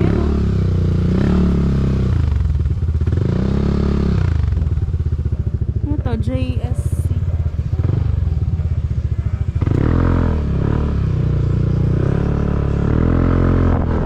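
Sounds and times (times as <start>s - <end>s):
motorcycle engine revving: 0.0s - 14.0s.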